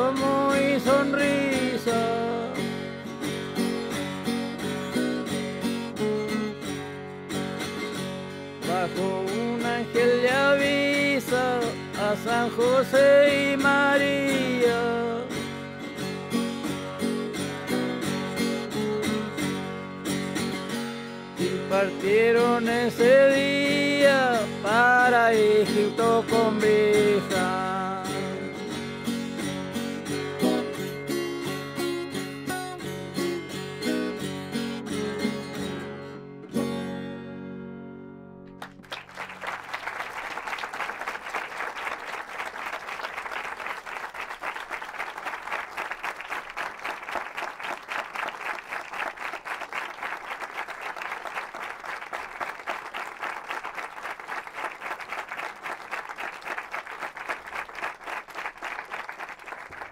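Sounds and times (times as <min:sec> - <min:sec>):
acoustic guitar playing: 0:00.0 - 0:39.4
audience applause: 0:38.6 - 0:59.9.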